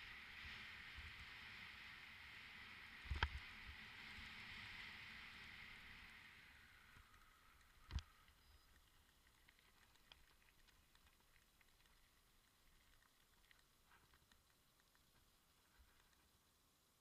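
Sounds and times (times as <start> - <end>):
hiss: 0.0 - 8.6
faint ticks: 3.0 - 3.5, 6.0 - 17.0.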